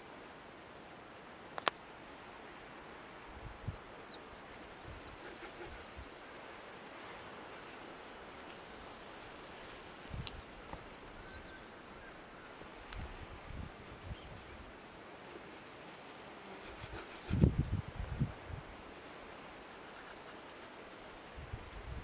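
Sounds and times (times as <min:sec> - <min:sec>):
wind and sea hiss: 0:00.0 - 0:22.0
bird chirping: 0:02.1 - 0:09.1
wind bumps on microphone: 0:16.6 - 0:18.8, 0:21.4 - 0:22.0.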